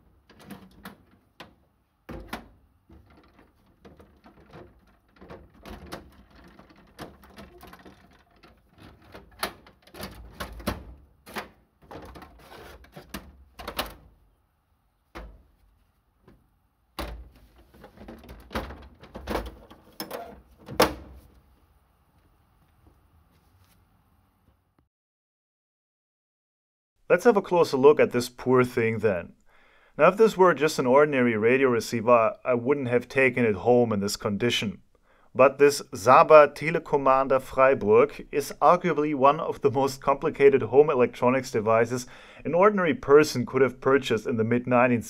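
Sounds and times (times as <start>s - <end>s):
metal box clanking and rattling: 2.1s - 14.0s, 17.0s - 21.1s.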